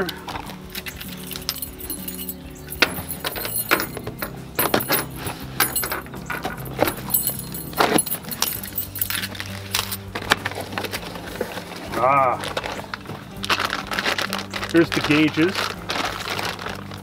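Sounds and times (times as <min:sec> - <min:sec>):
keys jangling on a keyring: 0:01.0 - 0:10.1.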